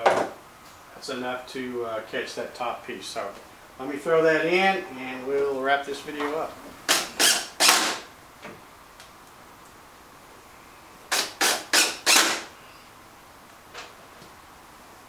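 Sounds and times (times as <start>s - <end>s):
drill driving screw into wood: 6.9s - 8.1s, 11.1s - 12.5s.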